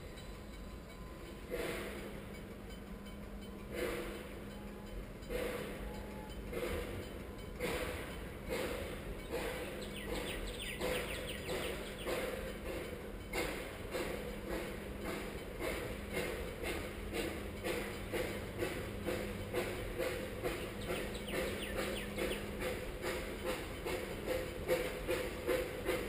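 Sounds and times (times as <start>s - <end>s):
steam locomotive pulsing: 0.0s - 26.0s
birds chirping: 9.2s - 12.3s, 20.4s - 22.7s.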